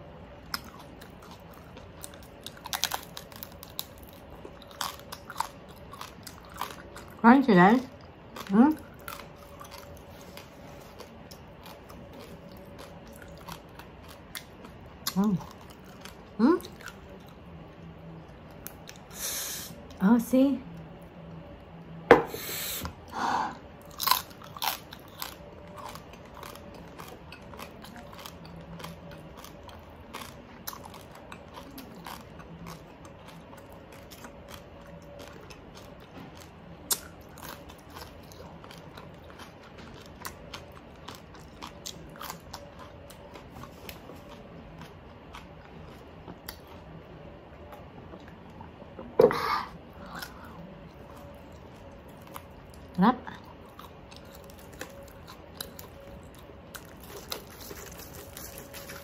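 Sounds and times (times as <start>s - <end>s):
person crunching crispy pork skin: 0.5s - 7.0s, 23.8s - 35.9s, 53.6s - 59.0s
cucumber crunching: 0.5s - 7.1s, 53.6s - 59.0s.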